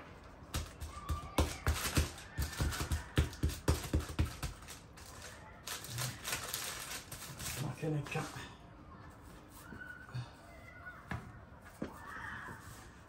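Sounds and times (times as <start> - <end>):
hands patting paste: 0.5 - 4.8
baking paper crackling: 0.5 - 8.4.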